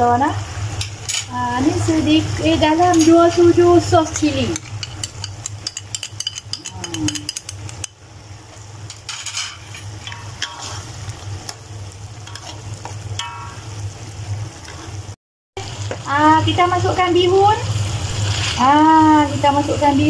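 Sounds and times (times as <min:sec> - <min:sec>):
sauce sizzling: 0:00.0 - 0:20.0
metal spoon scraping in wok: 0:08.9 - 0:11.0, 0:18.1 - 0:18.8.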